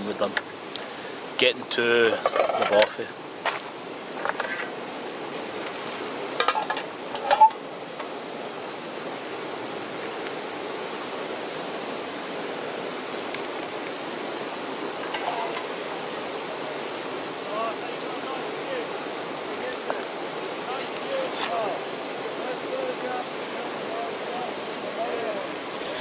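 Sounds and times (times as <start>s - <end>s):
metal pan clinking on stove: 6.4s - 7.6s
gas burner hissing: 25.4s - 26.0s.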